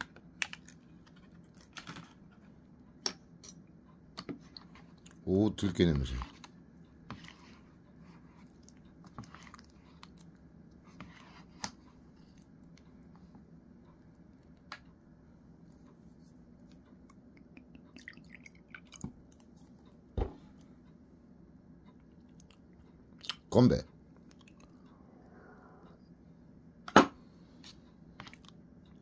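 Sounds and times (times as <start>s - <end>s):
person chewing: 8.4s - 10.7s, 24.2s - 25.0s.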